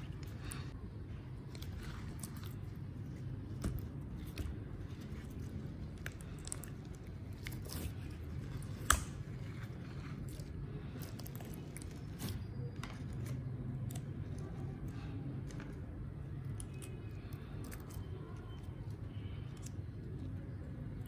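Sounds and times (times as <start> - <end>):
low steady background noise: 0.0 - 21.0
slime squishing by hand: 0.0 - 21.0.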